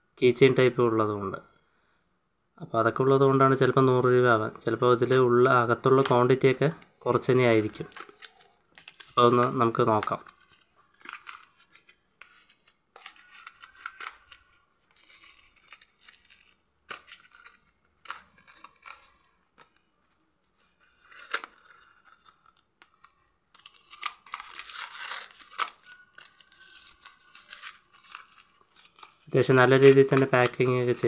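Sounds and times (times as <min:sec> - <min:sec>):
paper pouch tearing: 0:07.2 - 0:20.0, 0:20.6 - 0:31.0.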